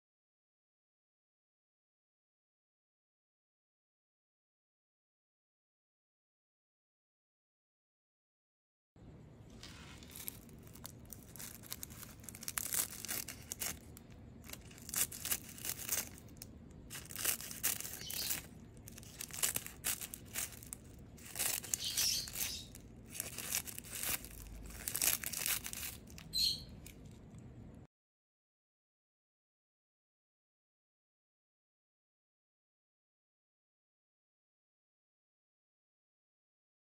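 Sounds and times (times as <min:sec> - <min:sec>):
seaweed sheets crackling: 0:09.5 - 0:27.0.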